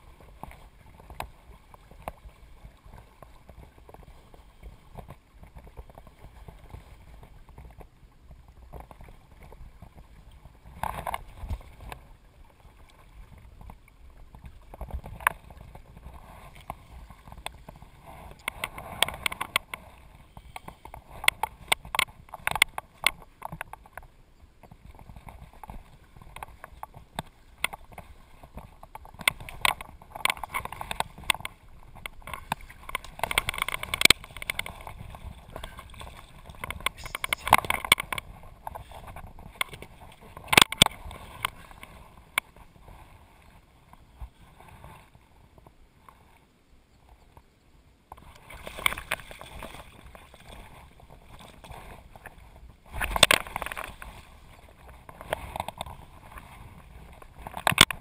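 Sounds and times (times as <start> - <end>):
fish thrashing and splashing: 32.2 - 38.8.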